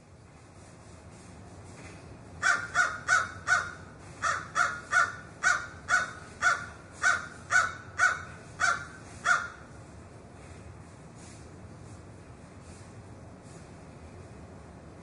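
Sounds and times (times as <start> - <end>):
crow cawing: 2.4 - 9.6.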